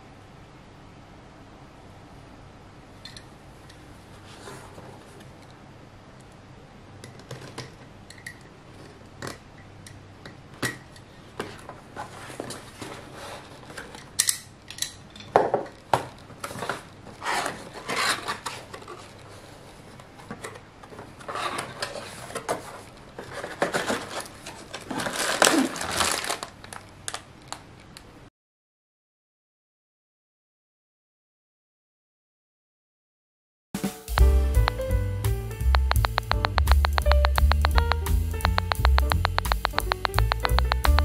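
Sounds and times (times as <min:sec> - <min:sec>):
plastic bags rustling: 0:23.3 - 0:26.8.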